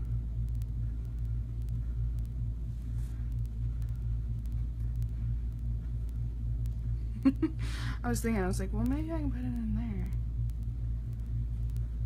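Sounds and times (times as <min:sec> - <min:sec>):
low rumbling hum: 0:00.0 - 0:12.0.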